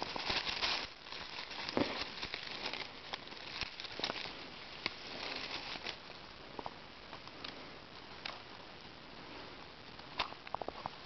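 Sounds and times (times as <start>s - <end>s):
dry leaves and twigs crackling: 0.0s - 8.6s.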